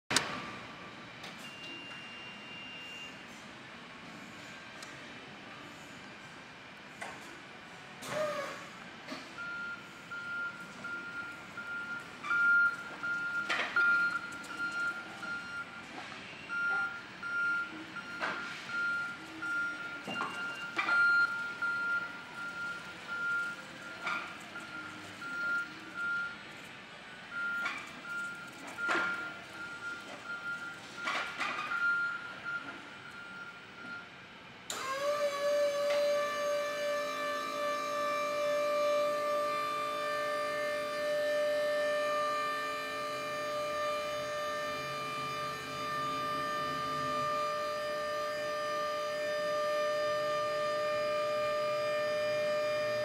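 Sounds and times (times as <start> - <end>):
forklift warning beeper: 1.4 - 3.2, 9.4 - 26.5, 27.3 - 34.2, 37.2 - 53.0.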